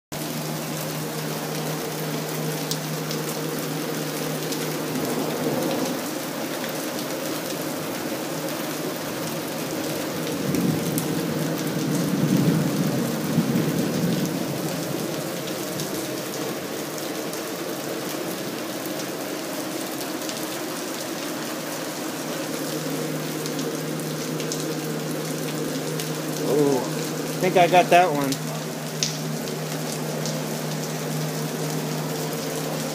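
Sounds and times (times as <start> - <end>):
heavy rain pouring: 0.2 - 32.9.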